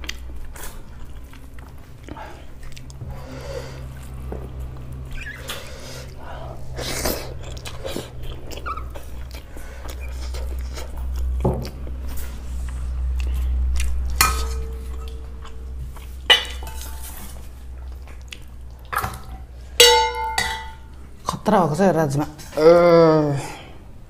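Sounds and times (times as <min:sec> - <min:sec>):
chewing: 0:00.0 - 0:19.5
steady low hum: 0:00.0 - 0:24.0
metal plate clinks: 0:19.8 - 0:20.9.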